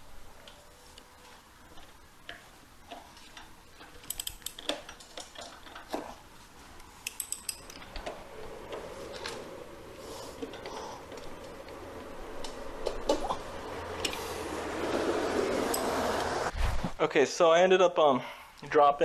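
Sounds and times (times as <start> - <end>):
ratchet wrench clicking: 3.4 - 5.0, 7.0 - 7.9.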